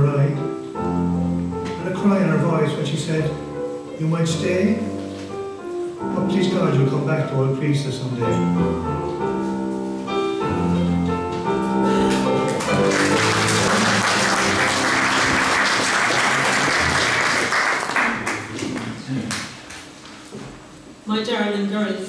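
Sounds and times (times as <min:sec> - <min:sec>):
piano chords: 0:00.0 - 0:20.0
audience applause: 0:12.1 - 0:19.4.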